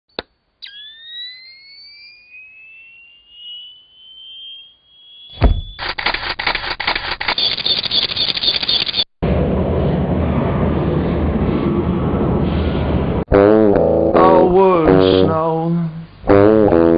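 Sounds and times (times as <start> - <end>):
whistling tone rising in pitch: 0.6 - 5.8
sharp bang: 5.3 - 6.4.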